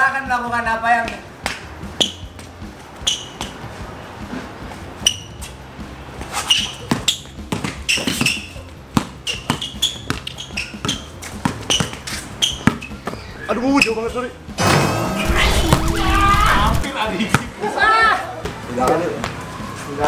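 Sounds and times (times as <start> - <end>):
basketball shoes squeaking: 2.0 - 3.6, 5.0 - 5.6, 6.2 - 13.9
basketball bouncing: 9.0 - 13.2.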